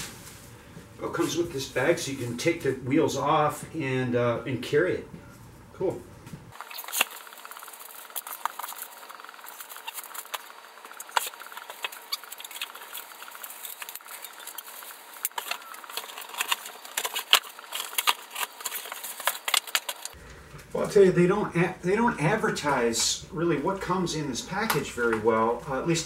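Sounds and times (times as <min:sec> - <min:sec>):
plastic and bubble wrap crinkling: 0:00.0 - 0:02.5, 0:06.5 - 0:20.8
cardboard being handled: 0:06.5 - 0:20.2.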